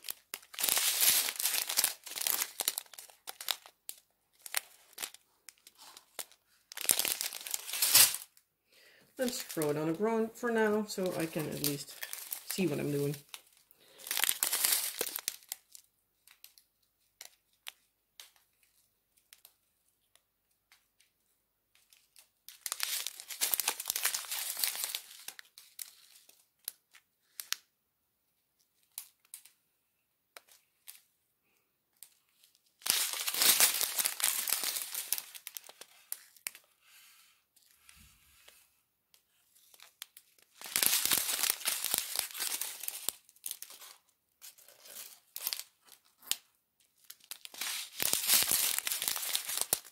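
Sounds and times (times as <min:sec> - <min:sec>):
plastic zip bags crinkling: 0:00.0 - 0:08.4, 0:09.2 - 0:19.6, 0:21.8 - 0:27.6, 0:32.0 - 0:36.7, 0:39.4 - 0:49.9.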